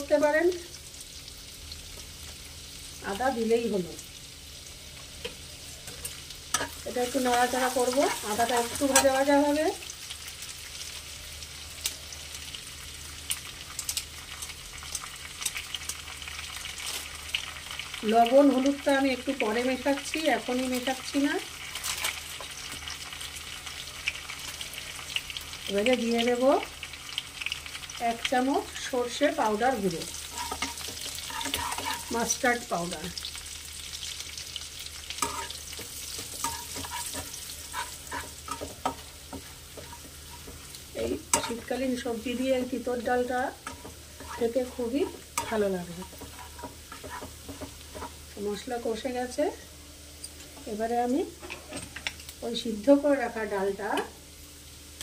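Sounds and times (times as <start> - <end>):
spices sizzling in hot oil: 0.0 - 55.0
spatula scraping a pan: 30.0 - 32.3, 35.0 - 41.7, 43.5 - 48.2.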